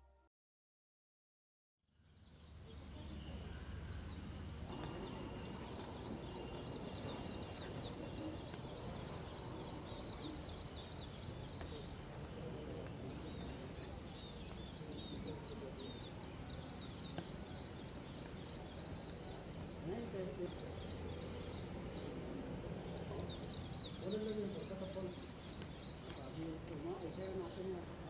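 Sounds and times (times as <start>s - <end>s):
small birds chirping: 1.9s - 28.0s
low rumble and hiss: 2.0s - 28.0s.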